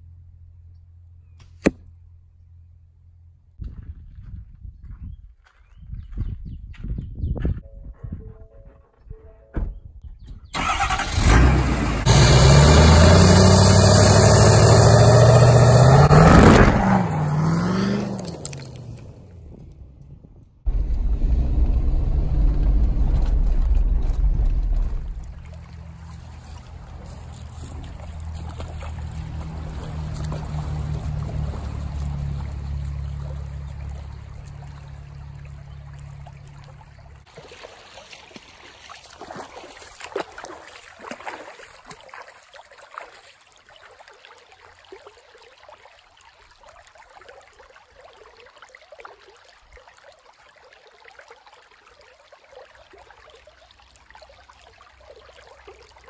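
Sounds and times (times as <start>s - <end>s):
creek water over rocks: 12.7s - 19.6s, 23.3s - 56.0s
bare feet splashing in water: 15.4s - 19.4s, 23.7s - 56.0s
heavy low rumble: 18.9s - 37.2s.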